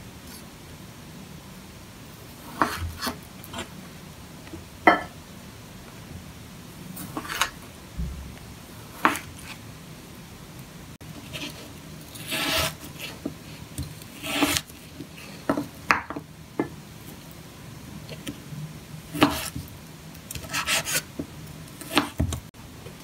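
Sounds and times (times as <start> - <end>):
knife rasping scrape: 7.0 - 7.6, 11.2 - 13.3, 14.1 - 15.4, 20.4 - 21.1.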